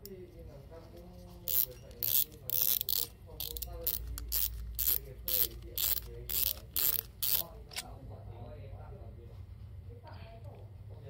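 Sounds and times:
fishing reel drag clicking: 1.5s - 7.5s.

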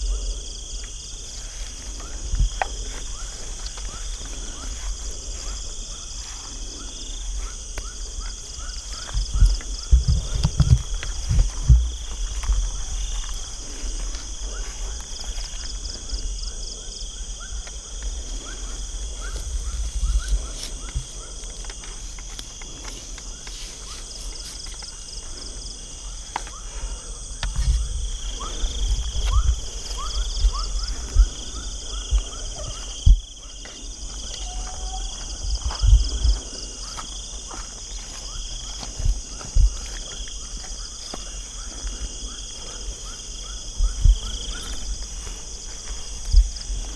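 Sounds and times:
crickets trilling: 0.0s - 46.9s
handling thumps and rustling: 9.0s - 13.4s.

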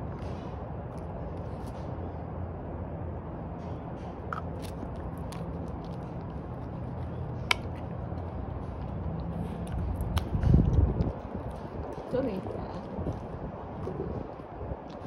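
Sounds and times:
steady low hum: 0.0s - 15.0s
dog gnawing a stick: 3.8s - 15.0s.

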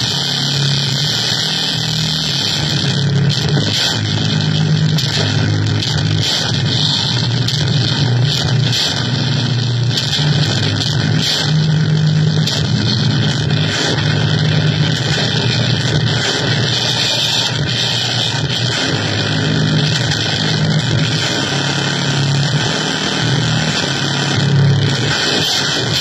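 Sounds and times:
harsh electronic noise music: 0.0s - 26.0s.

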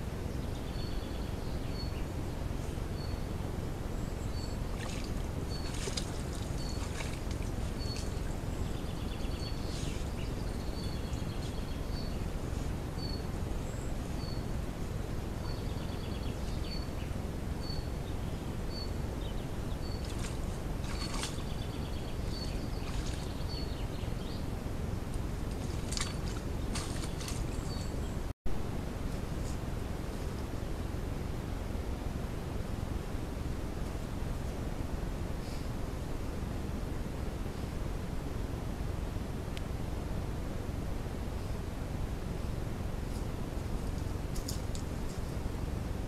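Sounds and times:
low background rumble: 0.0s - 46.0s
water sloshing and splashing: 4.6s - 8.5s, 19.8s - 23.6s, 25.1s - 28.1s.

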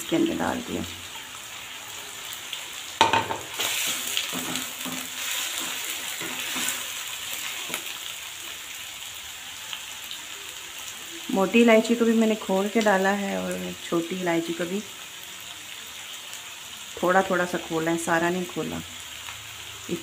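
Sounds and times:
chicken sizzling in a wok: 0.0s - 20.0s
spatula scraping a wok: 3.3s - 8.1s.

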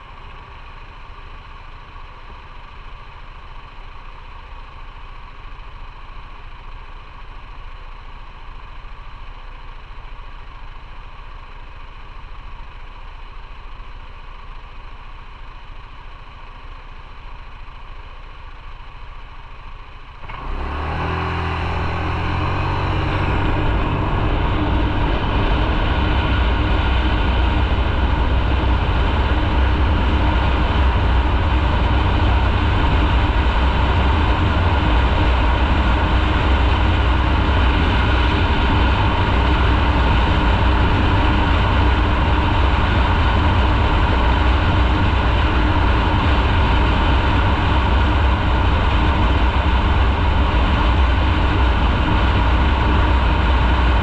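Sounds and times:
motorcycle engine accelerating: 15.7s - 54.0s
rush of noise: 20.2s - 54.0s.

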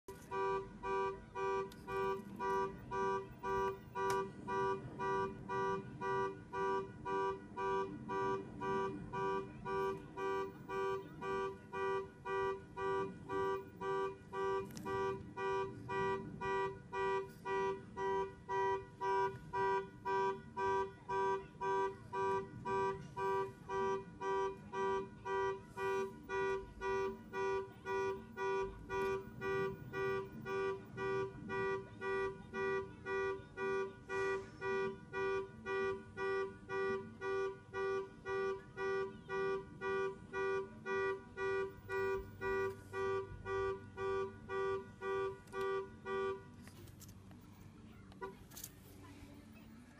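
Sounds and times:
car alarm horn honking: 0.1s - 49.6s.

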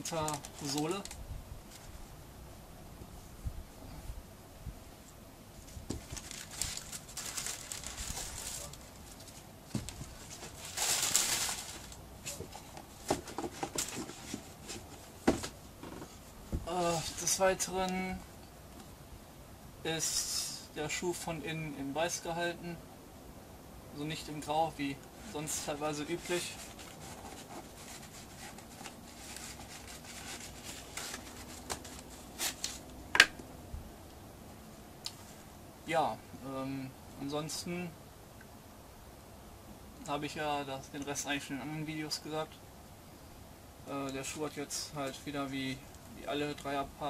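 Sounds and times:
paper rustling and crinkling: 0.0s - 2.1s, 5.6s - 17.4s, 25.2s - 32.9s.

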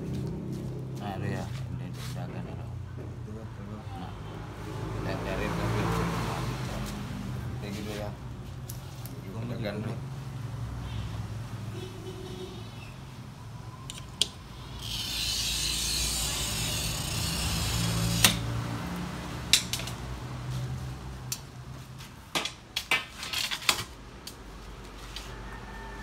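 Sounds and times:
clicks and taps of tools and glass: 13.9s - 14.4s, 19.5s - 20.0s
glass cutter scoring glass: 13.9s - 18.8s.

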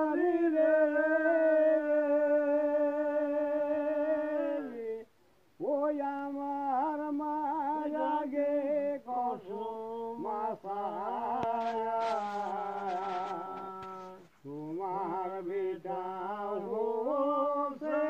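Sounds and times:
elderly man singing folk song: 0.0s - 18.0s.

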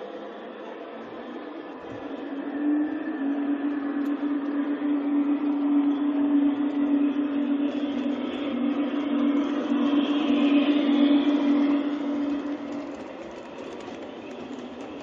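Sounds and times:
model train motor hum: 6.8s - 15.0s
wheels rattling on rails: 9.2s - 15.0s.

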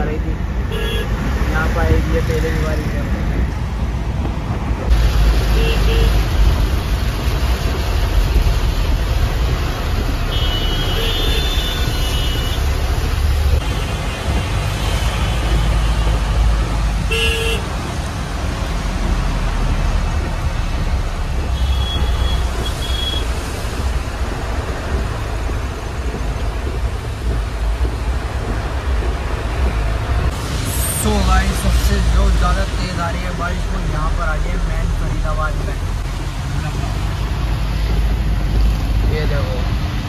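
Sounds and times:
vehicle road and engine rumble: 0.0s - 40.0s
car horn toots: 10.3s - 12.7s, 17.1s - 17.7s.

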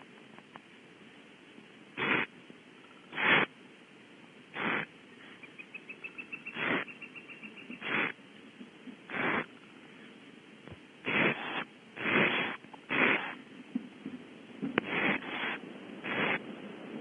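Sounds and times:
owlets hissing begging calls: 2.0s - 2.3s, 3.1s - 3.5s, 4.6s - 8.2s, 9.1s - 9.5s, 11.0s - 13.4s, 14.8s - 16.5s.

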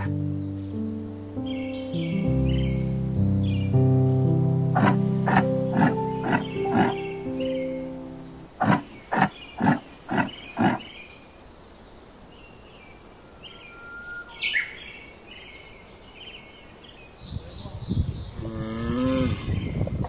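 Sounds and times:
faint bird chirps: 0.0s - 7.8s, 8.6s - 18.5s
deep falling lowing call: 2.0s - 10.8s
yaks grunting: 4.8s - 7.1s, 8.6s - 11.0s.

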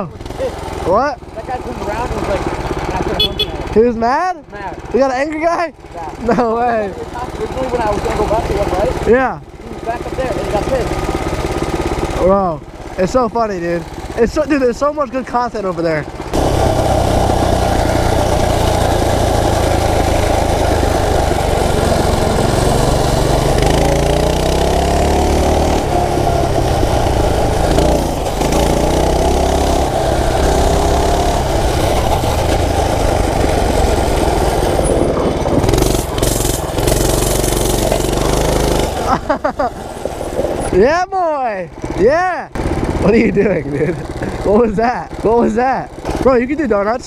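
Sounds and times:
small engine revving: 7.1s - 14.7s, 15.6s - 41.0s, 41.8s - 46.4s
wind noise on microphone: 31.5s - 36.4s.

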